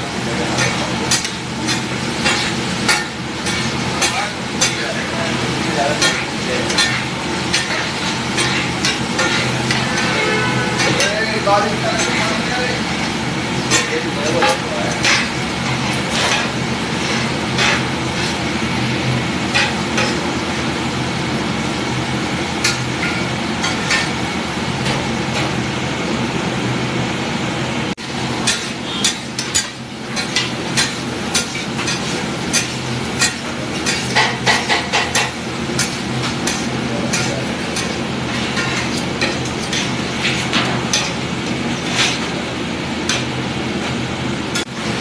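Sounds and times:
vegetables sizzling: 0:00.0 - 0:26.4, 0:28.0 - 0:45.0
metal spatula scraping and clacking: 0:00.4 - 0:18.5, 0:19.5 - 0:20.3, 0:22.6 - 0:24.2, 0:28.4 - 0:42.4, 0:43.0 - 0:43.3.

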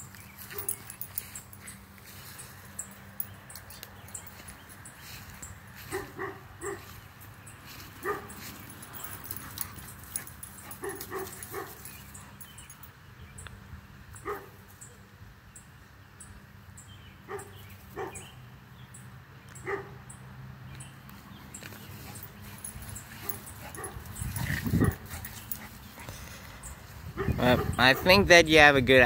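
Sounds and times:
dogs barking and yipping: 0:00.0 - 0:12.9, 0:14.2 - 0:14.6, 0:17.3 - 0:18.4, 0:19.5 - 0:20.2, 0:21.1 - 0:28.3.

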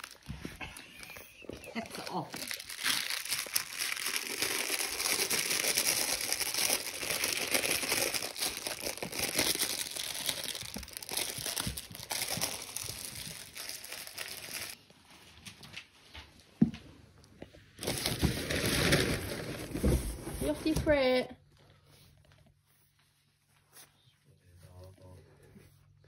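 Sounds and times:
plush toy crinkling: 0:00.0 - 0:15.9, 0:17.7 - 0:20.6.

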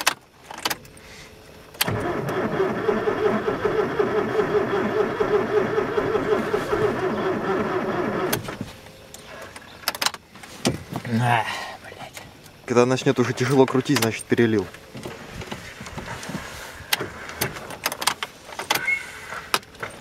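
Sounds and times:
starter motor cranking engine: 0:01.8 - 0:08.6.

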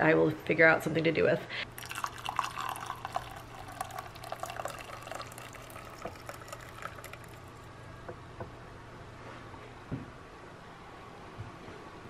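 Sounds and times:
broth pouring into a mug: 0:01.7 - 0:07.7
liquid dripping: 0:01.7 - 0:07.7.

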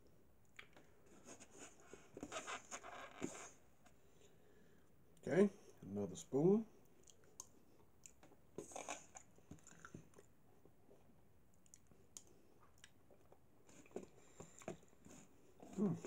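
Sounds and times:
mouth clicks and smacks: 0:07.0 - 0:10.3
person chewing: 0:07.0 - 0:15.8.

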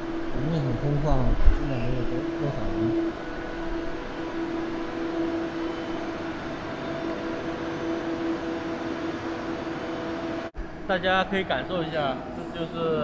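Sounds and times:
electric train humming: 0:00.0 - 0:13.0.

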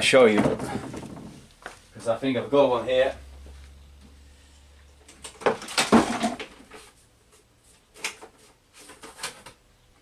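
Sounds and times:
objects clattering and sliding: 0:00.2 - 0:01.8, 0:04.5 - 0:09.6
rummaging through items: 0:05.0 - 0:09.6.

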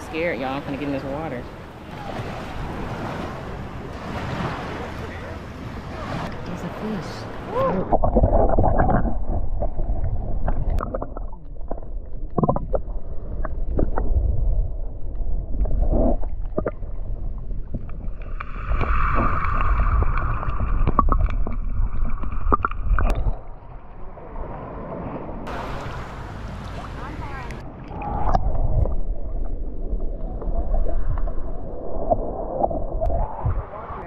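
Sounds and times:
underwater rumble of moving water: 0:00.0 - 0:34.0
underwater clicks and knocks: 0:07.9 - 0:14.2, 0:15.1 - 0:23.6.

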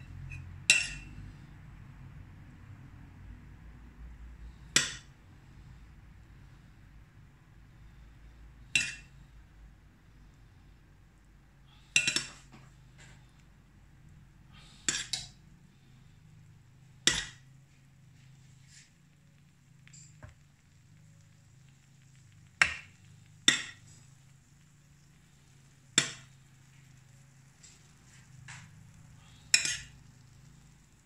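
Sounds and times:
low steady hum: 0:00.0 - 0:31.0
metal spoon clinking on a pan: 0:00.3 - 0:01.2, 0:08.8 - 0:09.1, 0:12.0 - 0:12.4, 0:14.8 - 0:15.4, 0:17.1 - 0:17.4, 0:22.6 - 0:23.9, 0:26.0 - 0:26.3, 0:29.3 - 0:30.0.

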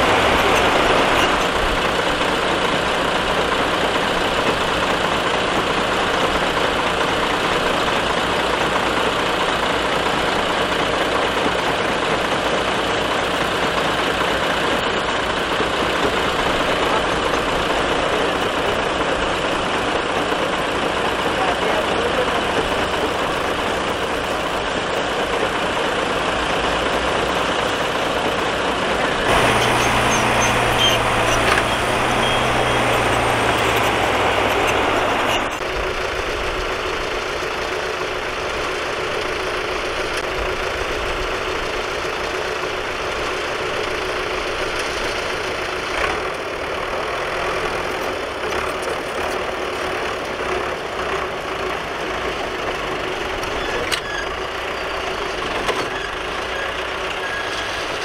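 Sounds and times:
diesel engines running: 0:00.0 - 0:58.0.

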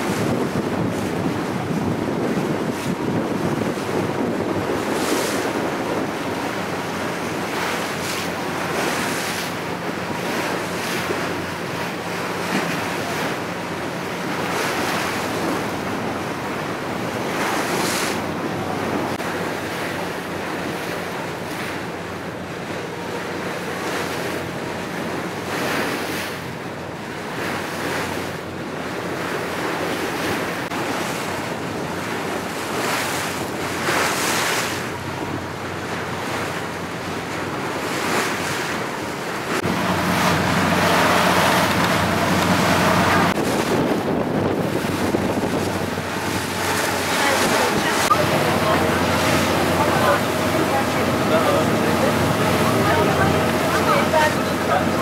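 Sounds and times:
wind buffeting microphone: 0:00.0 - 0:26.7, 0:27.4 - 0:55.0
sea water rushing and splashing: 0:00.0 - 0:55.0
low engine hum: 0:34.6 - 0:55.0.

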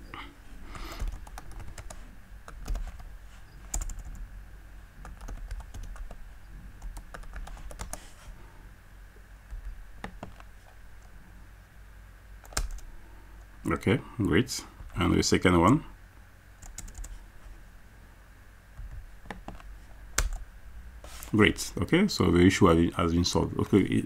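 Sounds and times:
computer keyboard typing: 0:00.8 - 0:03.1, 0:03.7 - 0:04.2, 0:05.0 - 0:06.2, 0:06.8 - 0:08.0, 0:12.4 - 0:12.9, 0:16.6 - 0:17.2, 0:19.3 - 0:20.4.

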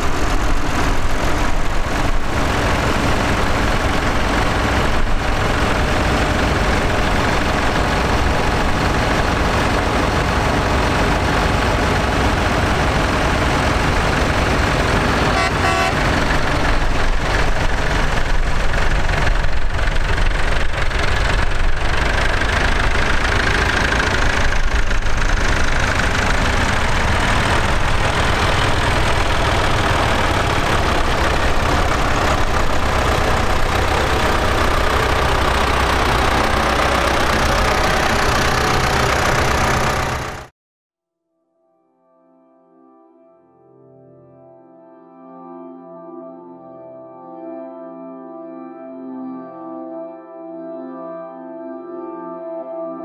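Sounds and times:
tractor engines running: 0:00.0 - 0:40.5.

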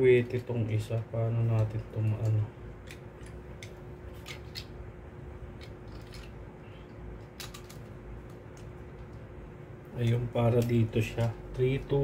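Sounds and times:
plastic clicks and rattles: 0:05.6 - 0:06.4, 0:07.2 - 0:09.2.

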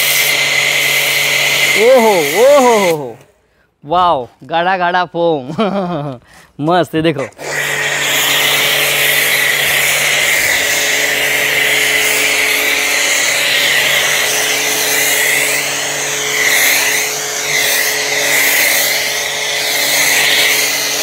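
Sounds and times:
foam spraying hiss: 0:00.0 - 0:03.1, 0:07.9 - 0:21.0
pressure washer motor hum: 0:00.0 - 0:03.2, 0:07.2 - 0:21.0.

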